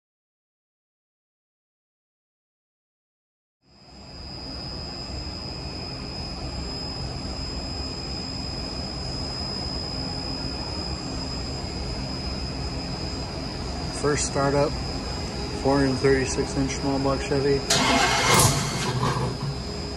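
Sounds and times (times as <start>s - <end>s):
high-pitched whine: 3.7s - 19.9s
engine running steadily: 9.9s - 19.9s.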